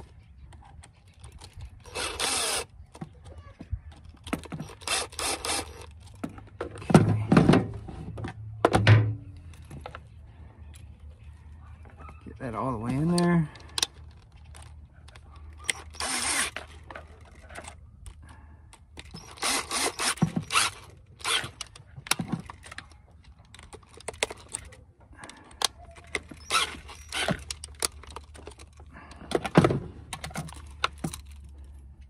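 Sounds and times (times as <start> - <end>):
cordless drill running: 1.8 - 2.7, 4.6 - 5.9, 15.6 - 16.7, 19.0 - 21.6, 26.4 - 27.5.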